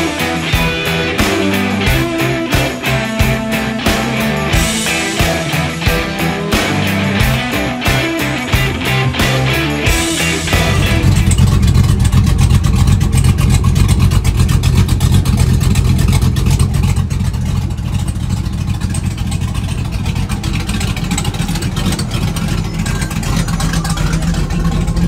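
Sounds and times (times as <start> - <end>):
engine idling with deep exhaust: 0.0 - 25.0.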